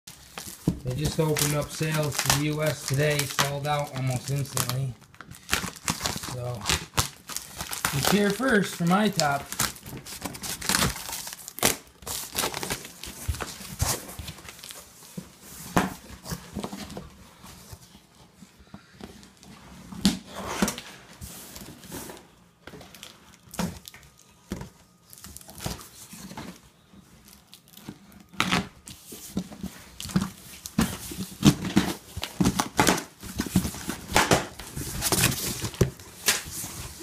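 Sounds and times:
packing tape peeling and tearing: 0.1 - 14.0.

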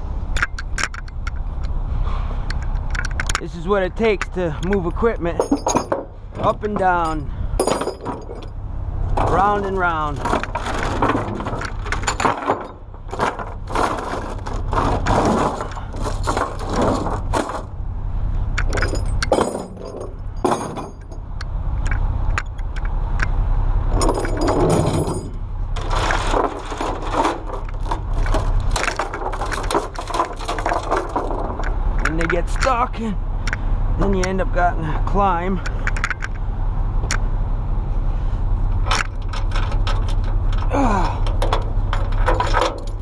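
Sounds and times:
steady low rumble: 0.0 - 43.0
chains clanking on wooden deck: 2.6 - 8.6, 9.2 - 17.8, 18.6 - 22.9, 23.9 - 32.9, 38.8 - 43.0.

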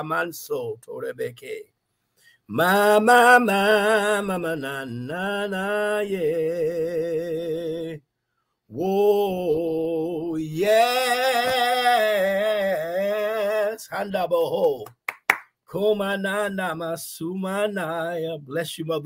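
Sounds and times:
man singing a slow chant: 2.5 - 8.0, 8.7 - 14.9, 15.7 - 19.0.

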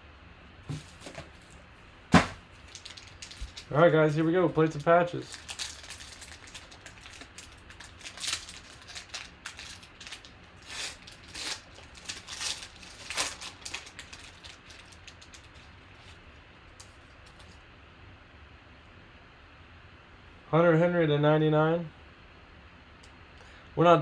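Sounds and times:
cards rustling: 2.2 - 17.6
foil wrapper tearing and crinkling: 2.2 - 17.6.

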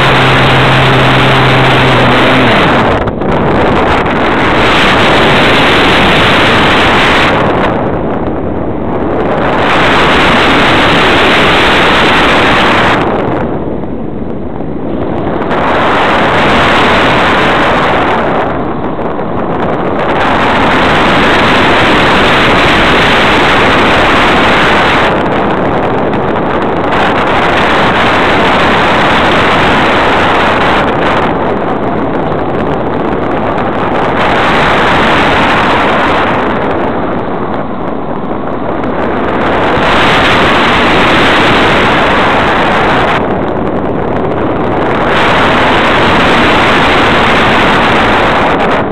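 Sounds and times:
model aircraft motor noise: 0.0 - 7.8
rushing airflow: 0.0 - 48.9.

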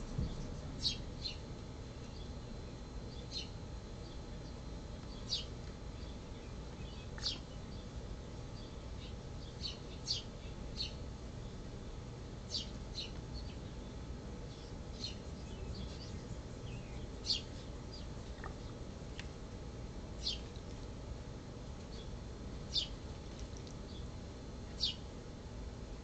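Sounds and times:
bird chip calls: 3.1 - 11.0, 14.5 - 18.6, 22.7 - 23.0, 24.8 - 25.0.

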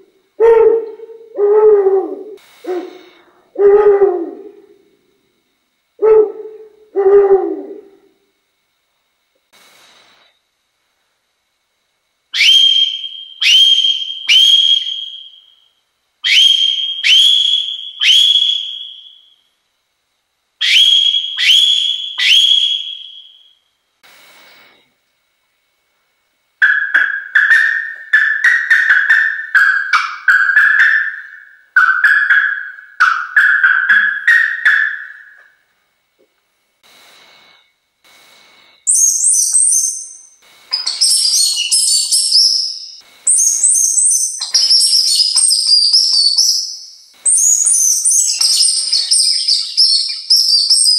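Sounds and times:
owl call hoots: 0.4 - 4.8, 6.0 - 8.2, 12.4 - 15.6, 16.2 - 19.4, 26.6 - 35.6, 38.9 - 50.9
fast warbled bird call notes: 12.4 - 15.5, 16.2 - 19.4, 20.6 - 23.5, 26.6 - 35.6, 38.9 - 50.9
sharp high whistled notes: 12.4 - 15.6, 26.6 - 35.6, 38.9 - 50.9.

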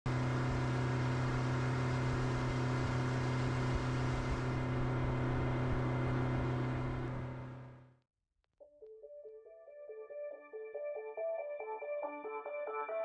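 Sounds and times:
steady engine hum: 0.1 - 7.9.

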